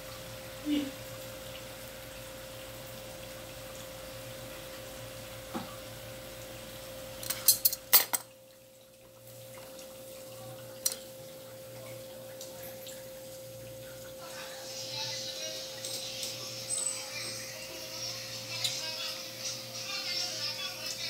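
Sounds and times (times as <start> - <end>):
faint steady hum: 0.0 - 21.0
bowls and utensils clinking: 7.2 - 8.3, 15.0 - 18.8.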